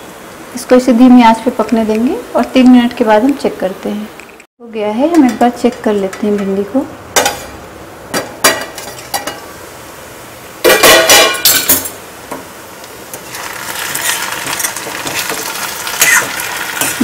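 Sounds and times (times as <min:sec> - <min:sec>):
vegetables sizzling in hot oil: 0:05.2 - 0:17.0
spoon scraping pan: 0:13.1 - 0:17.0.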